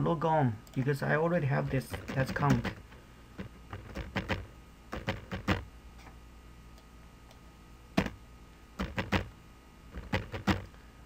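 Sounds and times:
computer keyboard keystrokes: 0:01.7 - 0:02.8, 0:03.8 - 0:05.6, 0:08.8 - 0:09.3, 0:10.0 - 0:10.7.

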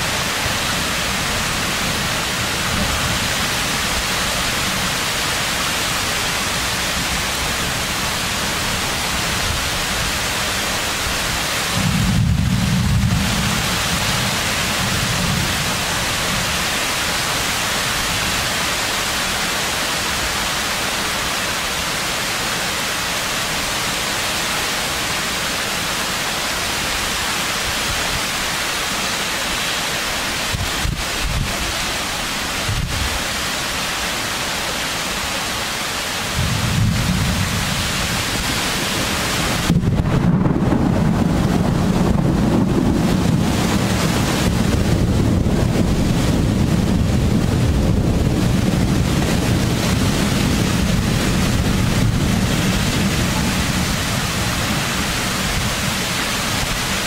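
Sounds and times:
heavy rain hissing: 0:00.0 - 0:57.0
thunder rumbling: 0:11.6 - 0:16.7, 0:36.3 - 0:57.0.

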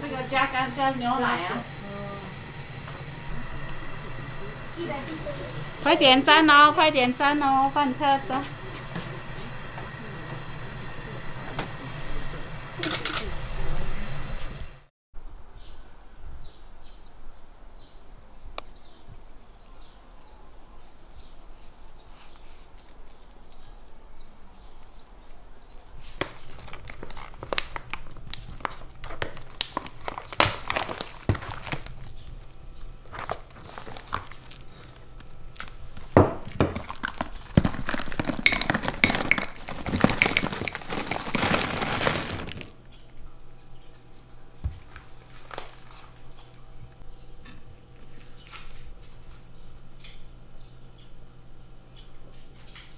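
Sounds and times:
paper pouch crinkling and rustling: 0:26.0 - 0:42.8, 0:44.8 - 0:46.3.

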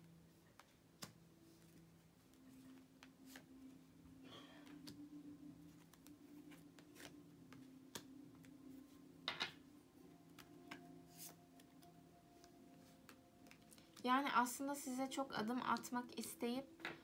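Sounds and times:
faint steady hum: 0:00.0 - 0:17.0
cards rustling: 0:04.7 - 0:08.9, 0:10.3 - 0:14.0
cards clicking: 0:05.7 - 0:08.5.

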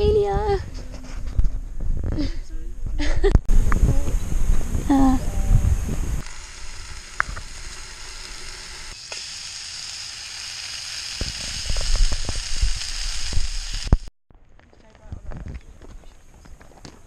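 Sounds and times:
bacon sizzling in frying pan: 0:06.3 - 0:14.1.

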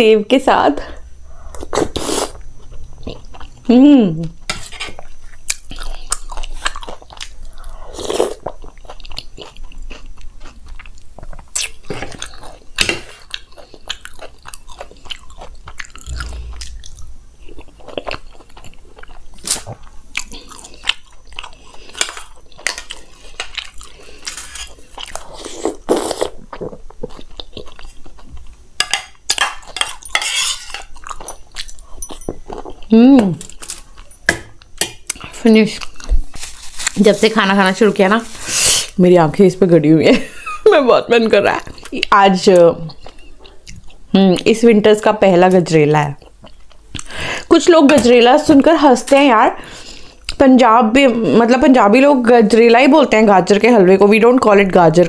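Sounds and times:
close chewing and crunching: 0:01.5 - 0:37.7, 0:41.4 - 0:44.5, 0:46.2 - 0:47.5
person humming: 0:16.1 - 0:17.2
spoon scraping bowl: 0:30.1 - 0:30.9.

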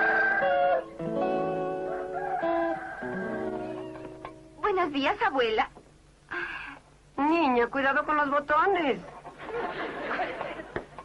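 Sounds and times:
rooster crowing: 0:00.0 - 0:00.9, 0:01.6 - 0:04.2
plucked guitar music: 0:00.0 - 0:05.0.

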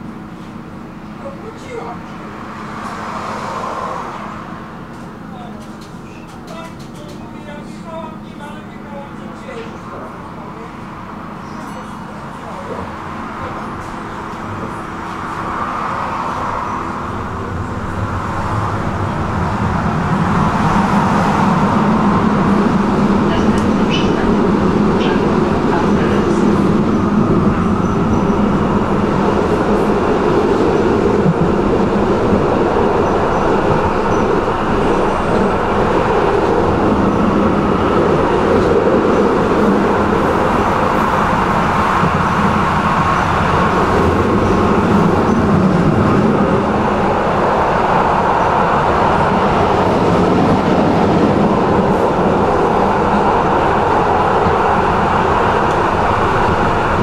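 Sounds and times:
tram wheels rolling on rails: 0:00.0 - 0:57.0.

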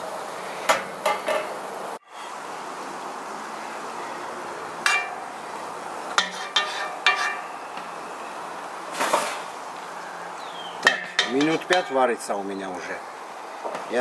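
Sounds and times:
metal skimmer clinking on pot: 0:04.8 - 0:05.3, 0:06.2 - 0:07.6, 0:10.8 - 0:12.3.

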